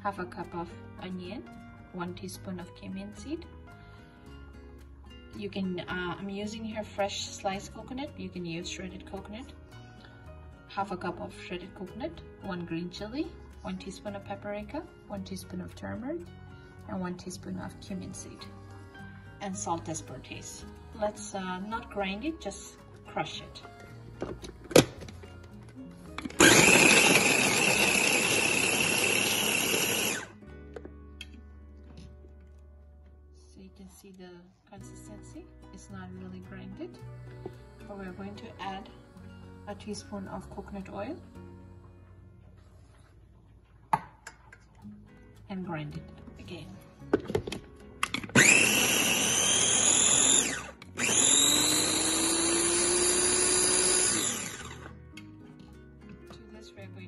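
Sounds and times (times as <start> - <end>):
electric food chopper running: 26.1 - 30.4, 48.0 - 55.0.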